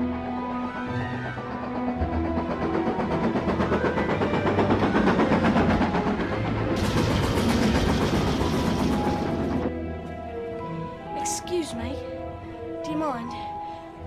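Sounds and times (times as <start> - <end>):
steam locomotive chuffing: 0.1 - 9.7.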